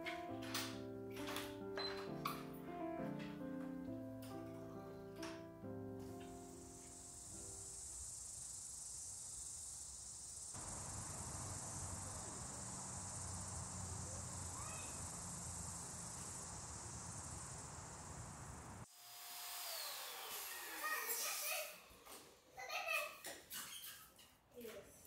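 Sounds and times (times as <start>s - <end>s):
insects chirring: 5.9s - 18.9s.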